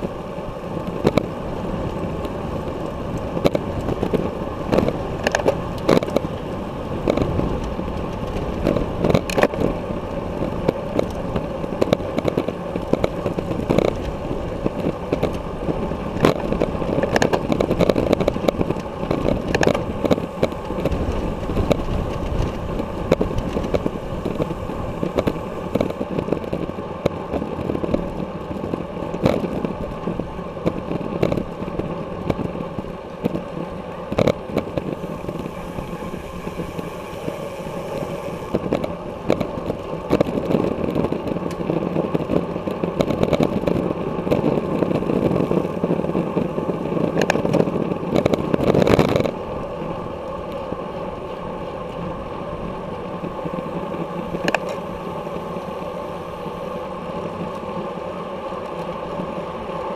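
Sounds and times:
bicycle road noise: 0:00.0 - 0:59.9
wind noise: 0:00.0 - 0:59.9
sharp clicks and knocks: 0:03.4 - 0:06.4.

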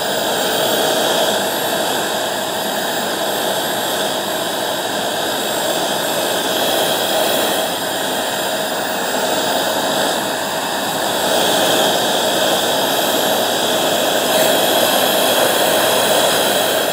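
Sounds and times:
hand vacuum motor whine: 0:00.0 - 0:16.9.

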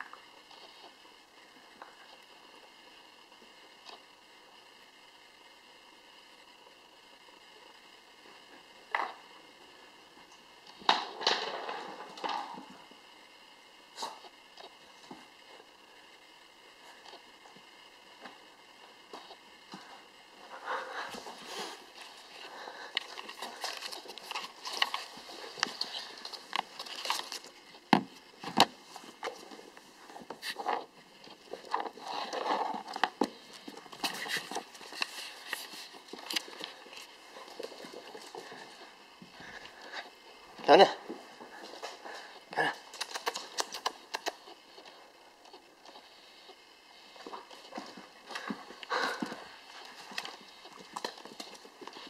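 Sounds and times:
puppy scuffling: 0:19.1 - 0:52.0.

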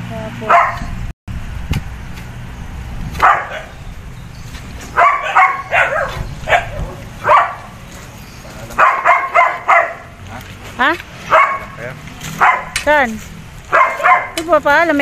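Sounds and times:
dog barking: 0:00.4 - 0:00.9, 0:03.2 - 0:03.8, 0:04.9 - 0:07.8, 0:08.7 - 0:10.2, 0:11.3 - 0:12.8, 0:13.7 - 0:14.4.

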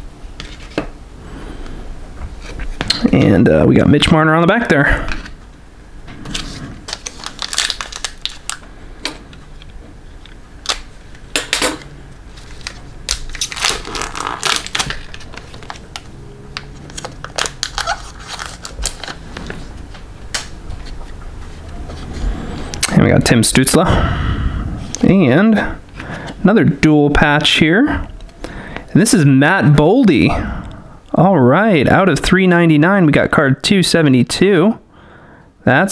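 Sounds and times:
wrapper rustling: 0:06.3 - 0:08.7, 0:12.3 - 0:21.2.

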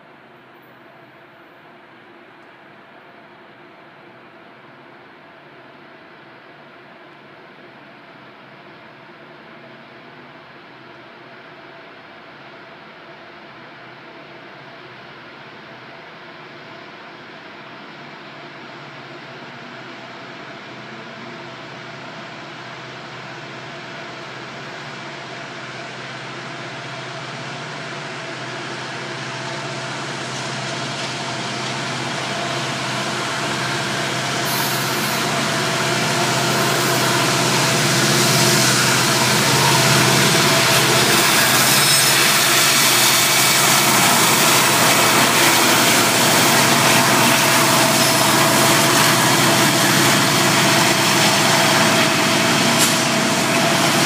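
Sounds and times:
diesel locomotives at full throttle: 0:18.9 - 0:54.0
steady engine whine: 0:19.2 - 0:54.0.

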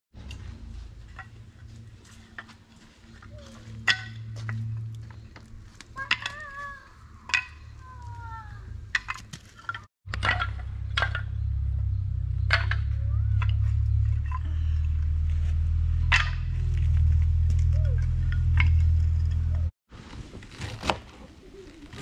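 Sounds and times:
steady low rumble: 0:00.2 - 0:06.0, 0:08.4 - 0:19.7
wooden blocks clattering: 0:01.0 - 0:11.6, 0:12.4 - 0:14.8, 0:16.1 - 0:16.9, 0:17.6 - 0:19.6
birds chirping: 0:03.3 - 0:09.0, 0:10.6 - 0:15.2.

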